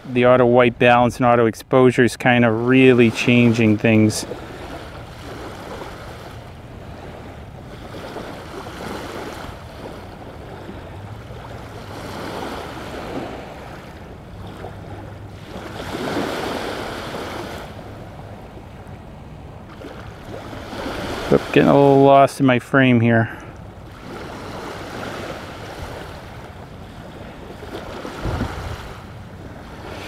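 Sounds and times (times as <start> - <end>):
small waves washing onto beach: 0.0 - 30.0.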